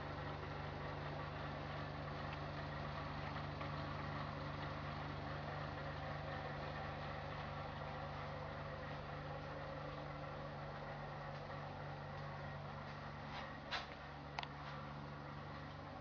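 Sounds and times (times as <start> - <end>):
low motor hum: 0.0 - 16.0.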